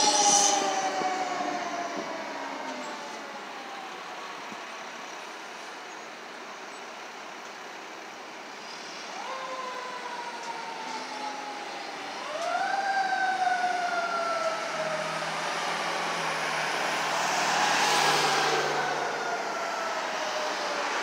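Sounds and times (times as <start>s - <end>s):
fire engine siren wailing: 0.0s - 21.0s
traffic noise: 0.0s - 21.0s.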